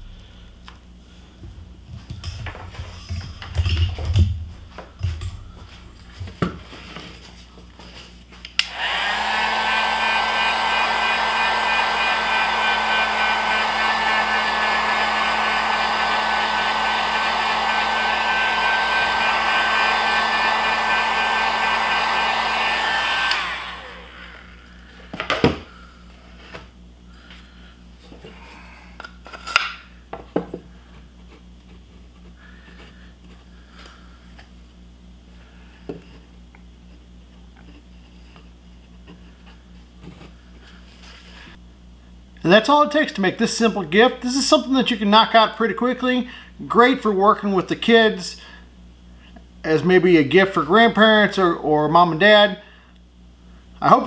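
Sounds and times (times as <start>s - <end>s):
heat gun blowing and whining: 8.5s - 25.7s.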